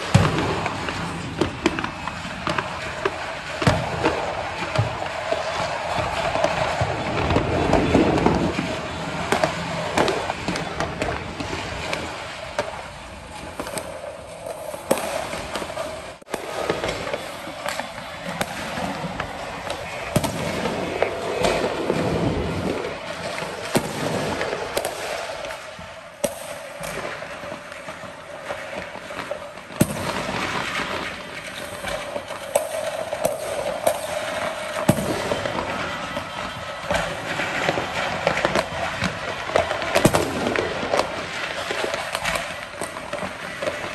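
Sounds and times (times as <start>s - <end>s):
fireworks bangs and pops: 0.0s - 43.9s
heavy firework booms: 16.3s - 25.1s.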